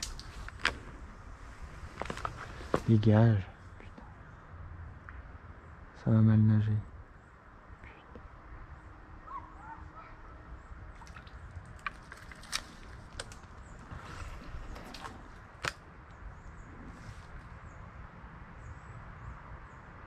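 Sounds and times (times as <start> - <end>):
faint bird chirps: 7.2 - 10.8.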